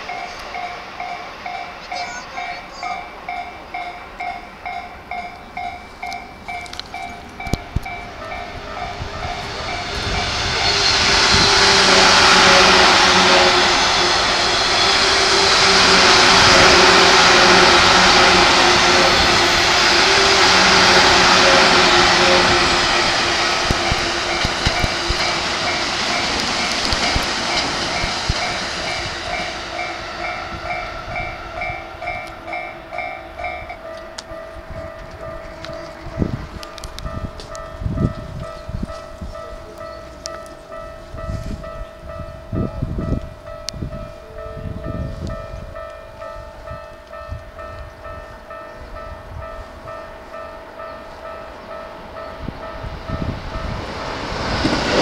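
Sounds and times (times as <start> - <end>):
level-crossing bell dinging: 0.0 - 54.0
train wheels rushing on rails: 0.0 - 55.0.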